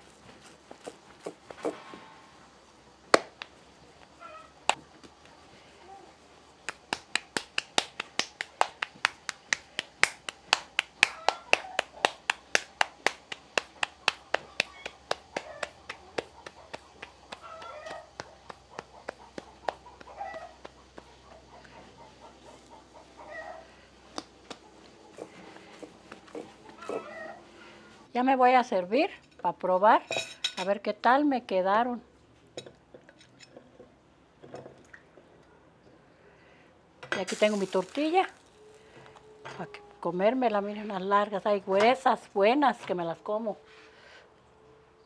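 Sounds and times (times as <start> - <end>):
hands patting dough: 3.1 - 5.7, 6.3 - 22.7, 24.0 - 27.2.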